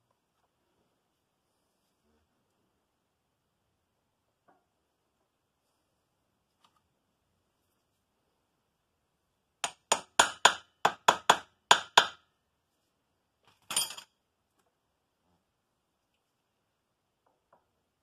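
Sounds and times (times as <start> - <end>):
metal clinking rattle: 13.6 - 14.1.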